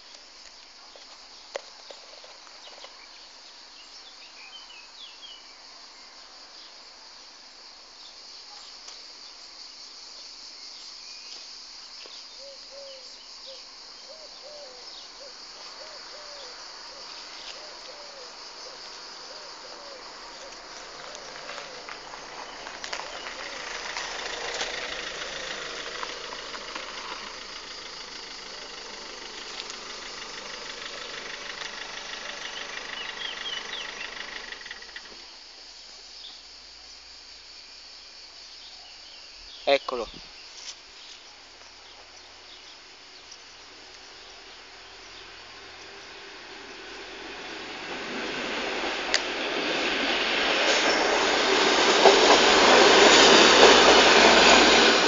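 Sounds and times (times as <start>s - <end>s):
insects chirring: 0.0s - 55.0s
car engine running: 20.7s - 35.2s.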